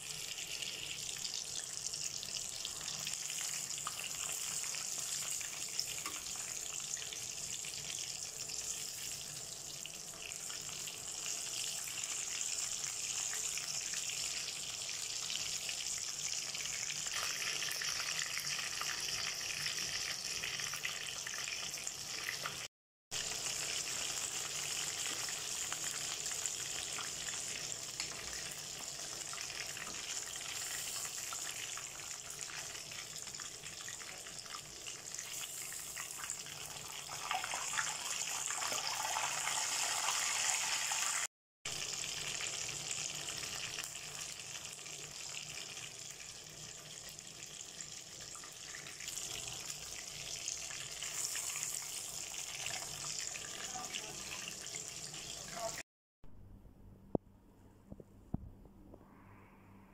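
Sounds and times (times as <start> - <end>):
chicken deep-frying in oil: 0.0 - 55.9.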